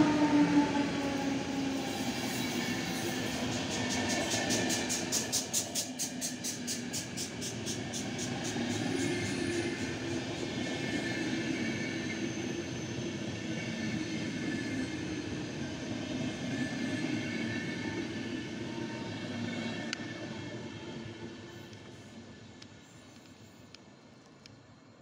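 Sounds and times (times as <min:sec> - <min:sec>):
train coaches rumbling on rails: 0:00.0 - 0:23.2.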